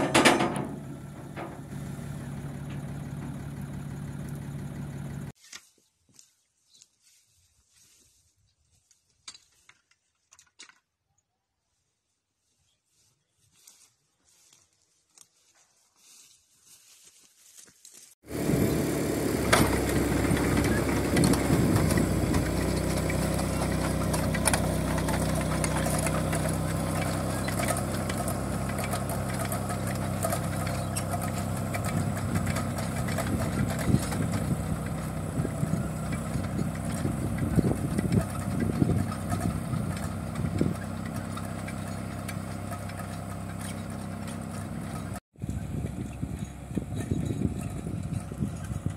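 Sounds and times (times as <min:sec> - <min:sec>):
rotary tiller clatter: 0:00.0 - 0:05.3, 0:18.3 - 0:48.9
tractor engine running: 0:00.0 - 0:05.4, 0:18.2 - 0:48.9.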